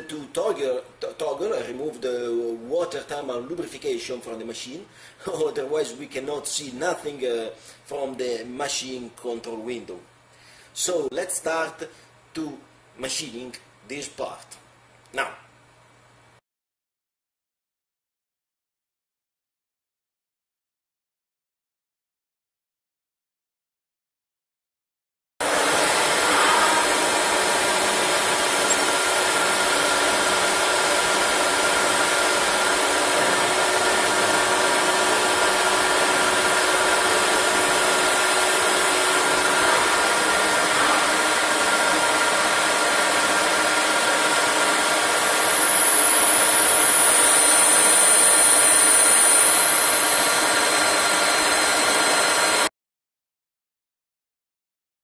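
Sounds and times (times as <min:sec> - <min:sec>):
high whine: 0:25.4 - 0:52.7
lathe spindle and cutting noise: 0:25.4 - 0:52.7.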